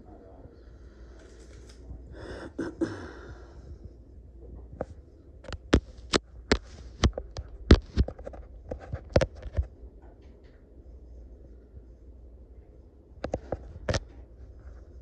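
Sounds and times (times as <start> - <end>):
sharp clicks and taps: 5.4 - 9.7.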